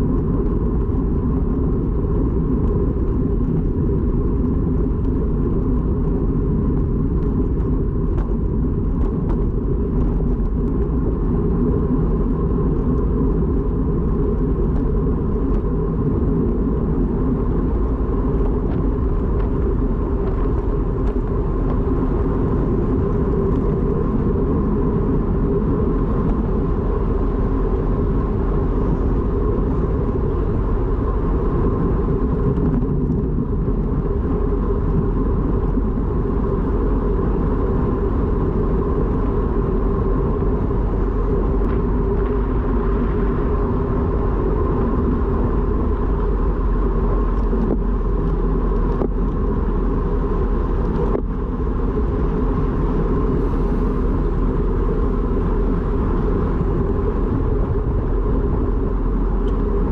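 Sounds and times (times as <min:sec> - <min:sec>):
faint steady whine: 0:00.0 - 0:59.9
road rumble: 0:00.0 - 0:59.9
wind rush: 0:00.0 - 0:59.9
light ticks: 0:59.4 - 0:59.7.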